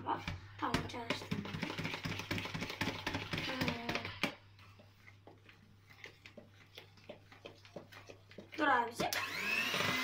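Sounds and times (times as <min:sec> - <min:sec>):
hand mixer beaters clicking: 0:01.1 - 0:04.4, 0:06.2 - 0:10.0.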